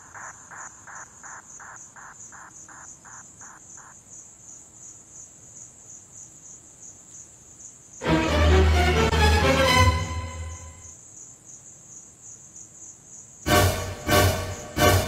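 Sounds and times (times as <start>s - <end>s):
insects trilling: 0.0s - 8.0s, 10.6s - 13.5s
low insect chirp: 0.0s - 8.0s, 10.5s - 13.5s.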